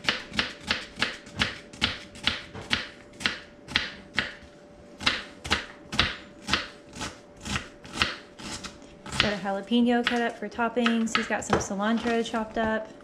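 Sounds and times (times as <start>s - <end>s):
knife chopping onion on wooden board: 0.0s - 9.4s.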